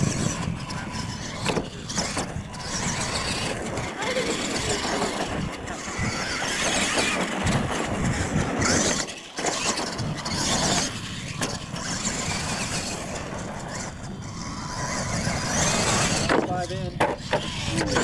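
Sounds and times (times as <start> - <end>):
rc truck motor and gears whining: 0.0 - 18.0.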